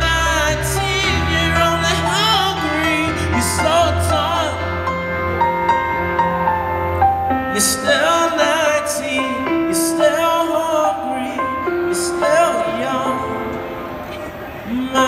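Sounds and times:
man singing with vibrato: 0.0 - 5.1, 7.3 - 15.0
bass: 0.0 - 7.3.

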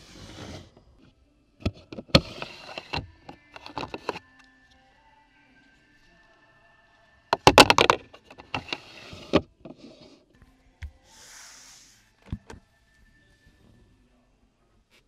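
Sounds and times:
clicks and knocks in car console: 7.4 - 9.5.

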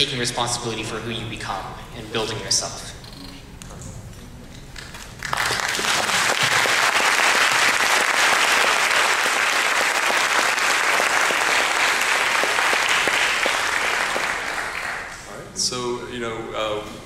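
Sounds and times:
audience applauding: 4.8 - 15.2.

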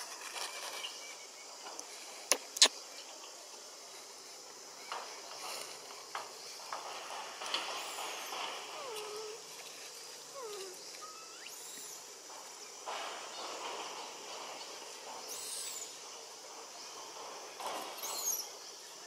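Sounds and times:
outdoor ambience: 0.0 - 19.0
whistled animal calls: 10.3 - 12.0.

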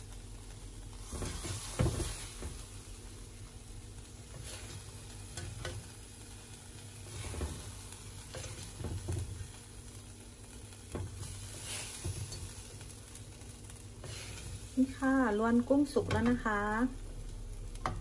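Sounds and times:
shrimp sizzling in a frying pan: 0.0 - 18.0
spatula scraping and knocking pan: 1.0 - 2.7, 7.0 - 9.6, 10.9 - 12.7.

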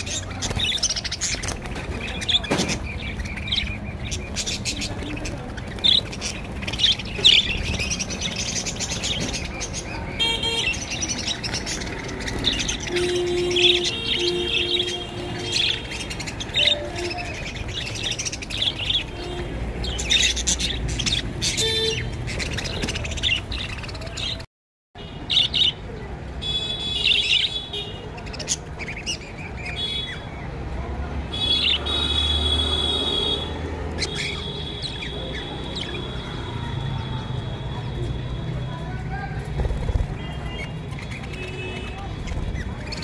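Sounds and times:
budgerigars chirping: 0.0 - 24.4, 33.9 - 36.0.

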